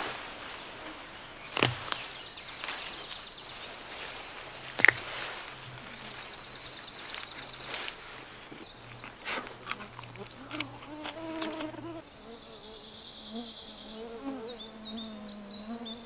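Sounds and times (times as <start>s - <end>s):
undergrowth rustling: 0.0s - 12.2s
plant stalks snapping: 0.9s - 11.8s.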